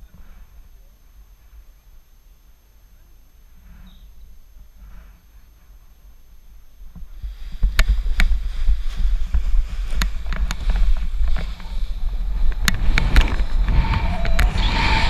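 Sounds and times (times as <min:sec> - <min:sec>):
wind buffeting microphone: 0:07.2 - 0:15.0.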